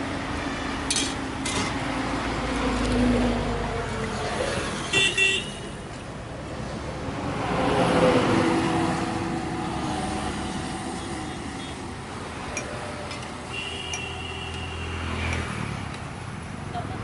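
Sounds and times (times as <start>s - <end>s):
vehicle horn toots: 4.9s - 5.7s, 13.5s - 15.0s
truck passing on highway: 6.5s - 13.0s.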